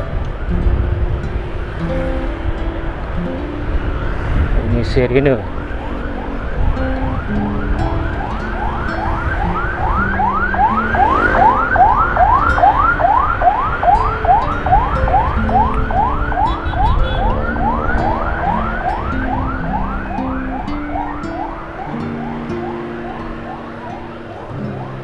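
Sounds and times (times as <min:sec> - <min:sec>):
siren yelping: 0:05.1 - 0:25.0.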